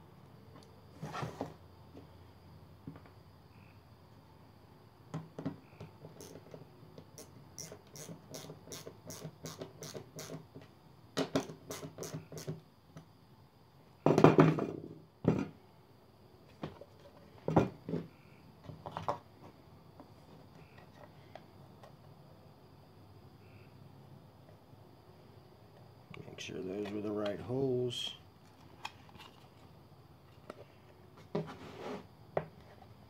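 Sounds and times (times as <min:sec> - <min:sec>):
parts knocking on wood: 0:14.0 - 0:15.5
loud rustling scrape: 0:31.4 - 0:32.1.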